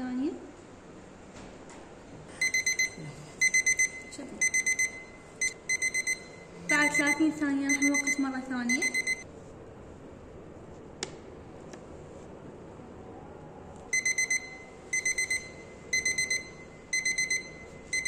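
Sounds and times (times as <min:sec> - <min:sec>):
countdown timer beeping: 0:02.4 - 0:09.2, 0:14.0 - 0:18.0.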